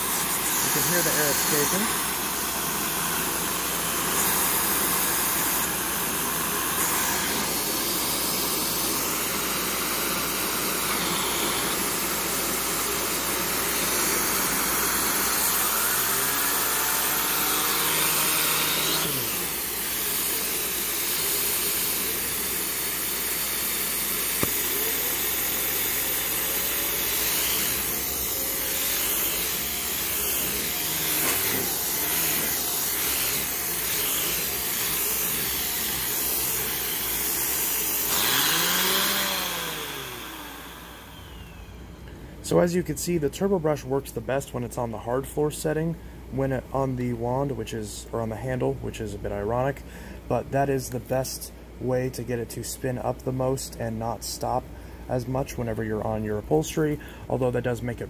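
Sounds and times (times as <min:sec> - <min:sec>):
vacuum cleaner running: 0:00.0 - 0:42.0.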